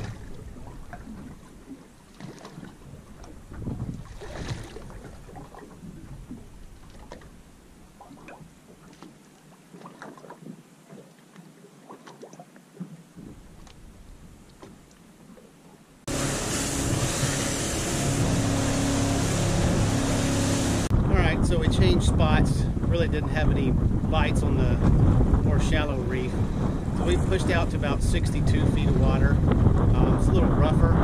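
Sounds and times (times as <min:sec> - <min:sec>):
wind noise on microphone: 0:00.0 - 0:01.7, 0:02.6 - 0:07.5, 0:16.1 - 0:31.0
outboard motor running: 0:00.0 - 0:08.0, 0:16.1 - 0:24.0
faint water sounds: 0:00.0 - 0:31.0
spray off the hull: 0:16.1 - 0:20.9.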